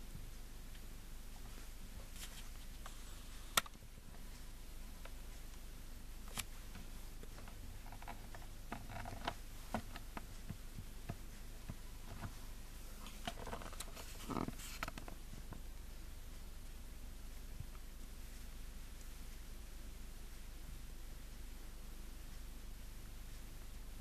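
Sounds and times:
steady low hum: 0.0s - 24.0s
faint clicks and taps: 0.1s - 16.4s
soft rustles: 1.3s - 5.5s, 6.3s - 15.7s.

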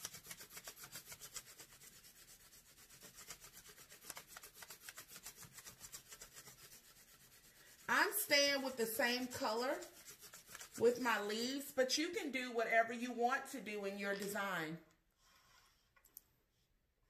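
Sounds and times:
pencil scratching on paper: 0.0s - 11.8s.

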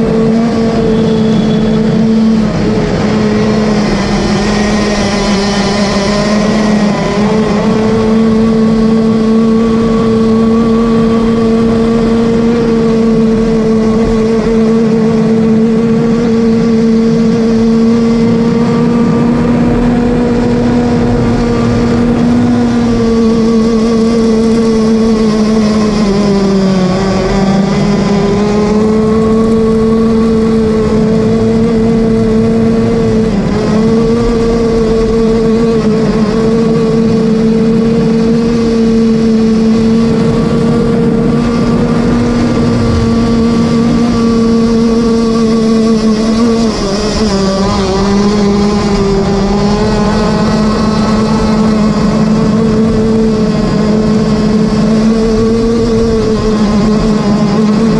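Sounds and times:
boat engine high drone: 0.0s - 57.9s.

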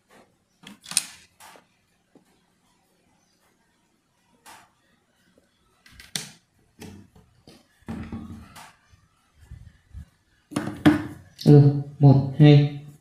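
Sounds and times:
hands handling speaker knocks: 10.5s - 11.2s.

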